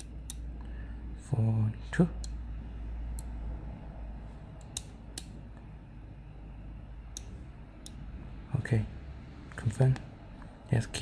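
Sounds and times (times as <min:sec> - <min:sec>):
slide switch clicks: 0:04.6 - 0:05.4, 0:07.1 - 0:08.0.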